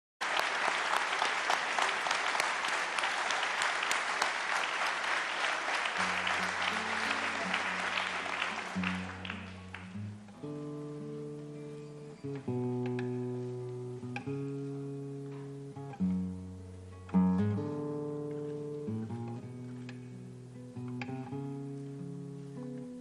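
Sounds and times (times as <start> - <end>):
audience applauding: 0.2 - 10.1
guitar playing: 6.0 - 23.0.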